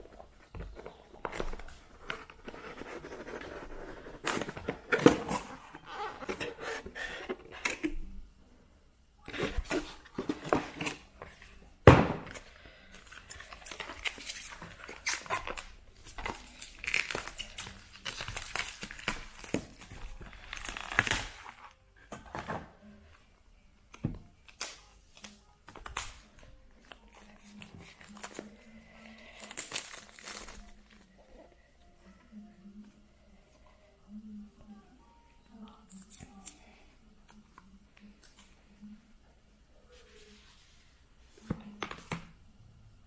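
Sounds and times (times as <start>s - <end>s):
plastic wrap crinkling: 13.1s - 21.7s, 29.3s - 31.2s.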